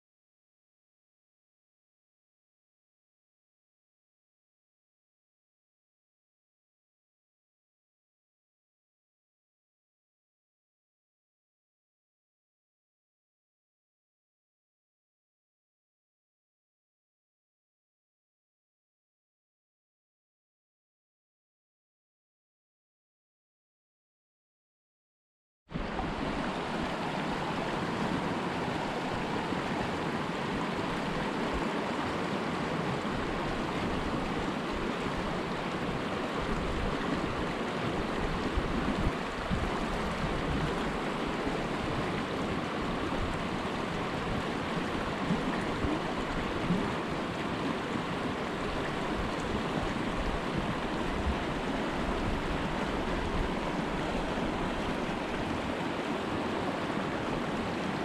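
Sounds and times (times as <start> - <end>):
creek running over rocks: 25.7 - 58.0.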